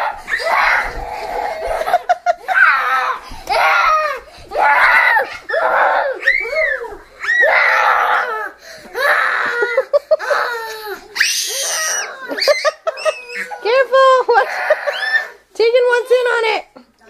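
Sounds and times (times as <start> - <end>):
children shrieking: 0.0 - 15.5.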